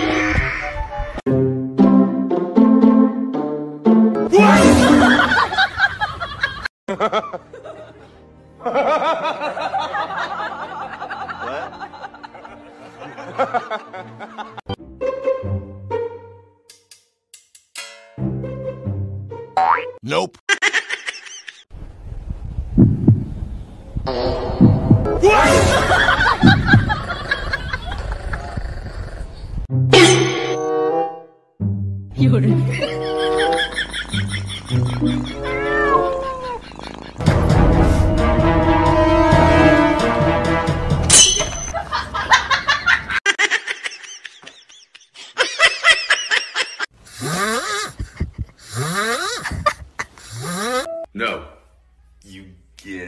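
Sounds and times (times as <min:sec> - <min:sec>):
person laughing: 0:04.4 - 0:07.4, 0:25.5 - 0:28.6, 0:32.5 - 0:37.3, 0:41.8 - 0:50.9
deep thumps through speaker: 0:22.7 - 0:23.4, 0:24.5 - 0:25.1.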